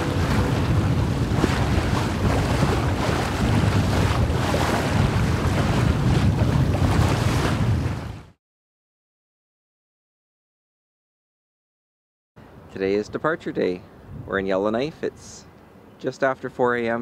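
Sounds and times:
water splashing along boat hull: 0.0s - 8.4s
wind buffeting microphone: 0.0s - 8.4s, 14.0s - 15.3s.

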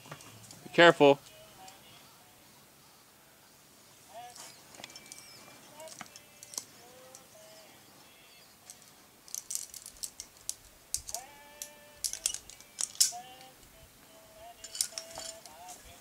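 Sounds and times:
metal climbing gear clinking: 4.3s - 7.3s, 8.6s - 13.5s, 14.6s - 16.0s.

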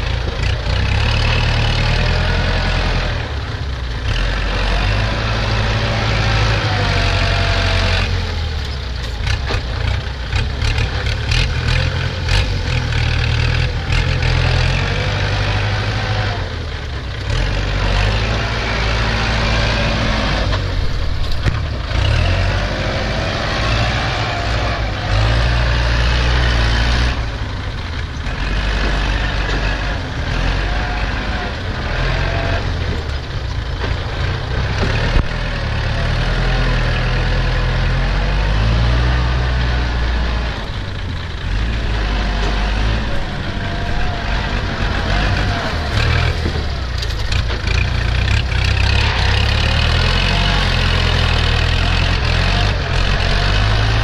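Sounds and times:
dump truck engine: 0.0s - 54.0s
tractor diesel engine: 0.0s - 54.0s.

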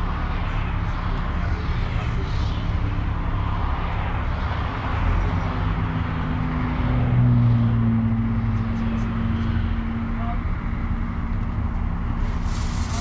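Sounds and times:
bus engine running: 0.0s - 7.2s, 8.0s - 13.0s
road noise: 0.0s - 13.0s.

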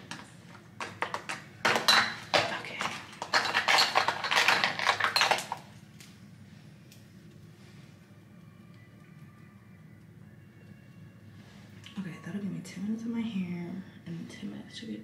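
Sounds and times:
small hard objects clattering: 0.0s - 5.7s.

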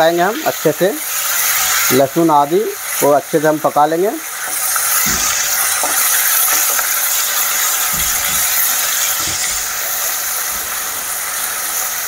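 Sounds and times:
garlic and ginger sizzling in oil: 0.0s - 12.0s
spatula knocking pan: 4.4s - 9.8s.

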